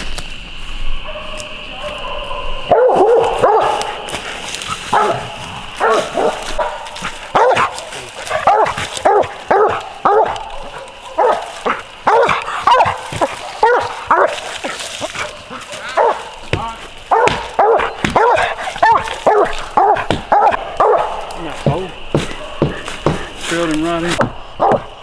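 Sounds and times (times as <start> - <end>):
dog barking: 1.0 - 4.0, 4.9 - 16.4, 17.1 - 21.4, 22.1 - 23.2, 24.6 - 24.9.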